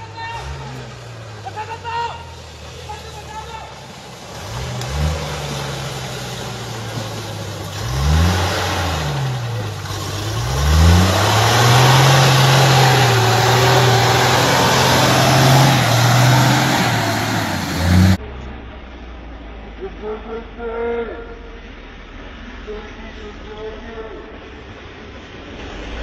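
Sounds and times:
truck engine labouring: 0:00.0 - 0:18.6.

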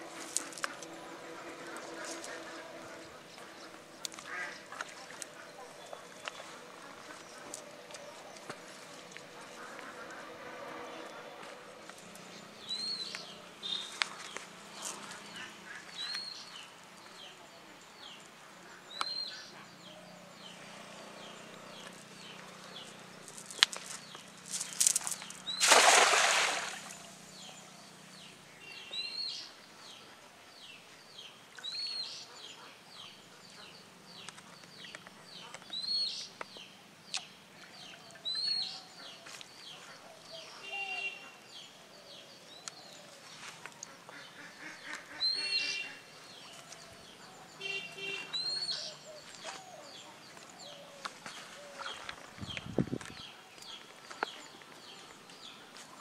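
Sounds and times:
birds calling: 0:00.0 - 0:56.0
net splashing into water: 0:24.8 - 0:27.1.

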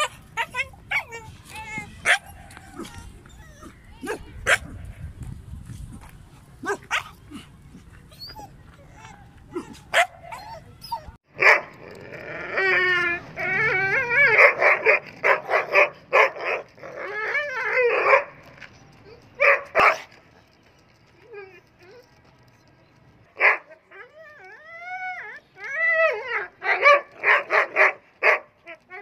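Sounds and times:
dog whining: 0:00.0 - 0:04.2, 0:08.1 - 0:11.2, 0:12.3 - 0:14.6, 0:23.9 - 0:26.6
dog yipping barks: 0:00.0 - 0:04.8, 0:06.6 - 0:07.2, 0:08.2 - 0:11.8, 0:14.0 - 0:16.7, 0:19.4 - 0:20.1, 0:26.0 - 0:28.6.

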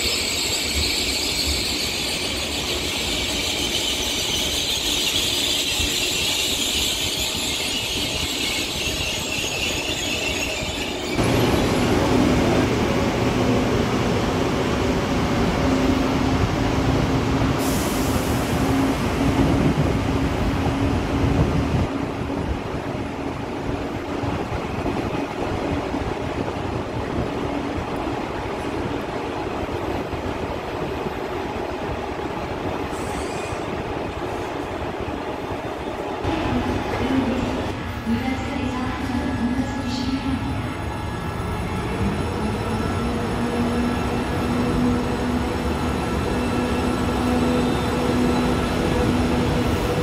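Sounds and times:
train wheels hissing and squealing: 0:00.0 - 0:11.8, 0:17.6 - 0:19.0, 0:32.8 - 0:33.8, 0:45.1 - 0:50.0
train low rumble: 0:05.7 - 0:50.0.

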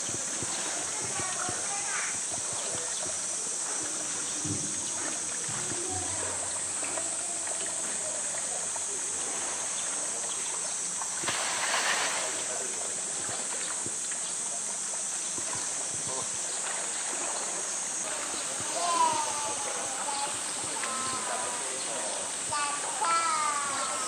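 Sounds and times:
water sloshing and lapping: 0:00.0 - 0:24.0
loud water splash: 0:11.1 - 0:12.6.

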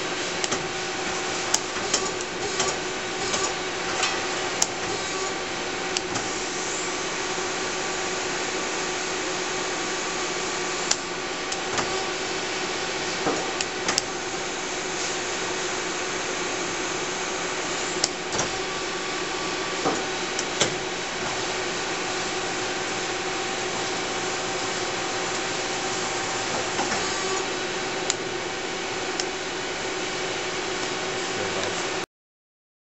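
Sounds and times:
lathe machine humming: 0:00.0 - 0:32.0
sharp mechanical clicks and clunks: 0:00.4 - 0:06.4, 0:10.9 - 0:12.1, 0:13.2 - 0:14.2, 0:18.0 - 0:18.8, 0:19.7 - 0:21.4.

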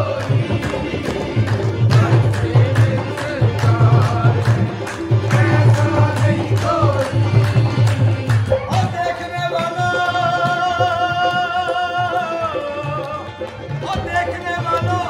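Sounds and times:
hand claps: 0:00.0 - 0:10.6
drum beat: 0:00.0 - 0:13.2
harmoniums: 0:00.0 - 0:15.0
man singing: 0:00.0 - 0:15.0.

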